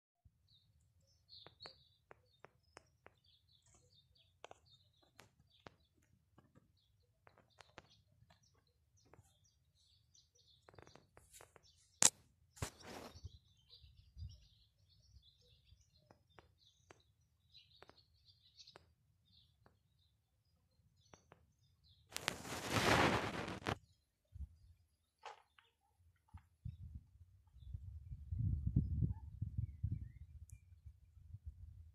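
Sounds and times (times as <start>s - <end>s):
small birds chirping: 0.3s - 31.9s
brief rustle: 22.1s - 23.8s.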